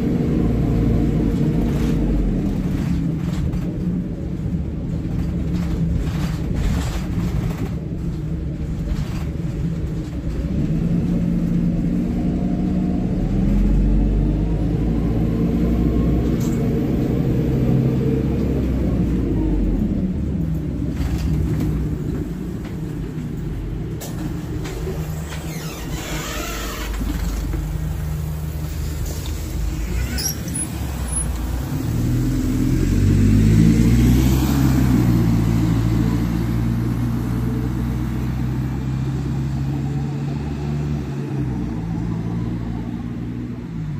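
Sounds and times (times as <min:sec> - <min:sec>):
bus engine accelerating: 0:00.0 - 0:43.9.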